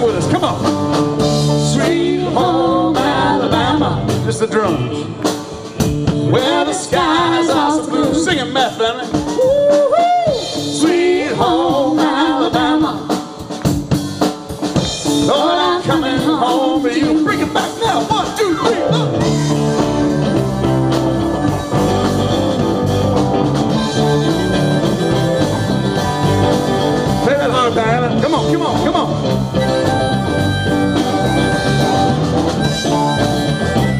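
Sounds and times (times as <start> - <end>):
rock band playing: 0.0 - 33.9.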